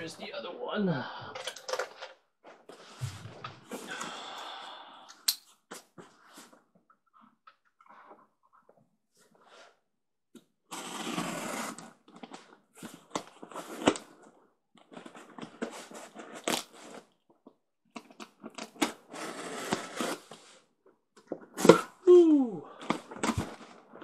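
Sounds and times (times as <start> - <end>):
box rustling and knocking: 1.5 - 3.9
cardboard tape ripping: 10.7 - 12.0, 16.2 - 17.0, 18.0 - 20.3.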